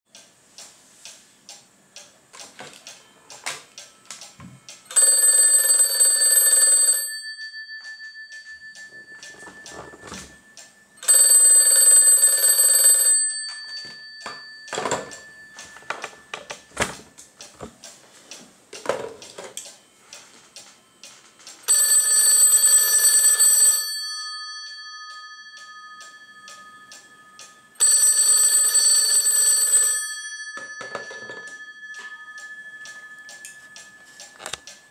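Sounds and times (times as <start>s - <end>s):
telephone bells ringing: 4.9s - 17.1s, 21.6s - 34.9s.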